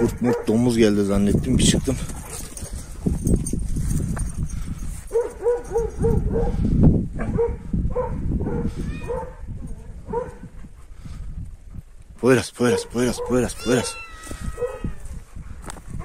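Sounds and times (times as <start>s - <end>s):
dog barking: 0.0s - 0.6s, 5.1s - 6.6s, 7.2s - 9.5s, 10.1s - 10.4s, 12.7s - 13.5s, 14.5s - 15.0s
wind rumble on microphone: 0.0s - 16.0s.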